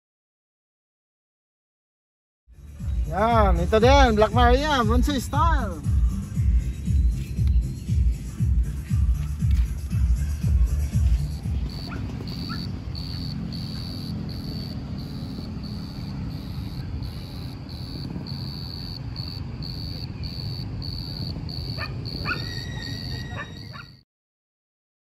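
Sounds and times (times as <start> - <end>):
insect chirping: 11.2 - 23.9
dog barks: 11.8 - 12.8, 21.7 - 24.0.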